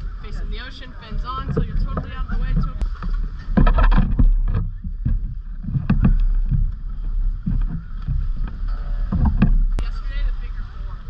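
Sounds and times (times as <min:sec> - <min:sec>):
wind rumbling on microphone: 0:00.0 - 0:11.0
scuba gear knocking: 0:01.1 - 0:10.0.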